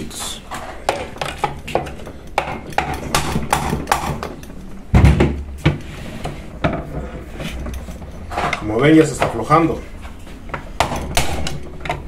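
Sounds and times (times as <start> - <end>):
heavy thud: 4.9 - 5.8.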